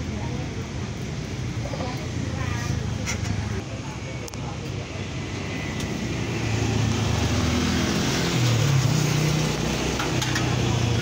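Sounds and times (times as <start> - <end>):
passing vehicle engine droning: 5.4 - 11.0.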